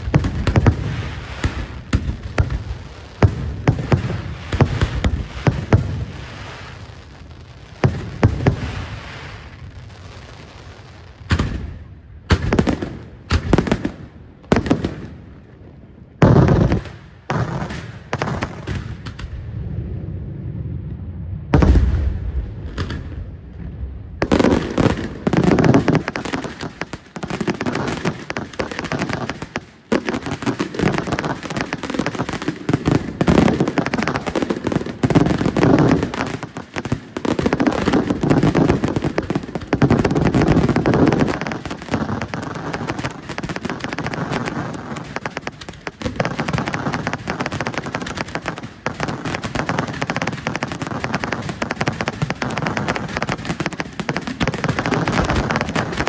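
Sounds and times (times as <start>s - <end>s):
firework shells bursting with bangs: 0.0s - 6.8s, 24.2s - 56.0s.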